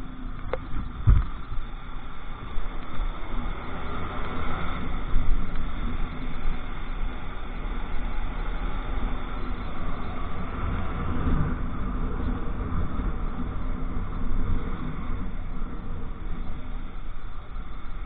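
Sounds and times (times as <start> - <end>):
wind rushing over microphone: 0.0 - 18.0.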